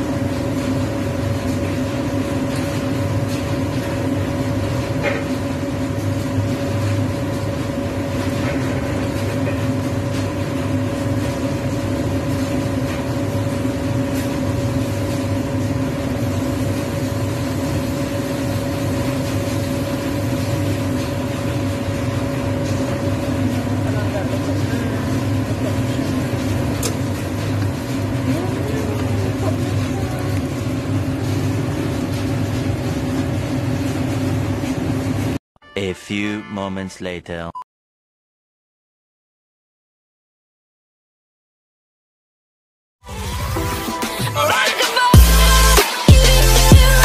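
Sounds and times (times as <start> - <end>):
mechanical hum with whine: 0.0 - 35.4.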